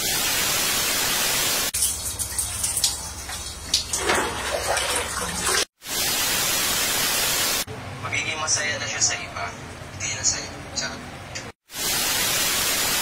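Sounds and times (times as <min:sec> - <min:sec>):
tv static hiss: 0:00.0 - 0:01.7, 0:05.8 - 0:07.7, 0:11.6 - 0:13.0
running water: 0:01.1 - 0:07.6.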